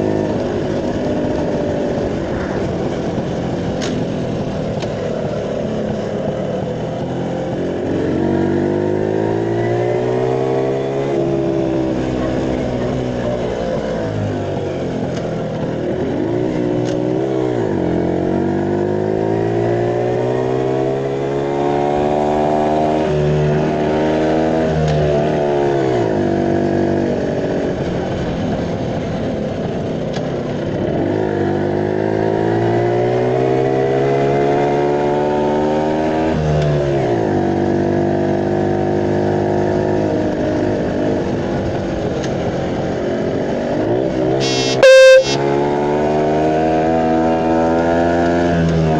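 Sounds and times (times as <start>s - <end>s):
motorcycle engine accelerating: 0.0s - 23.3s.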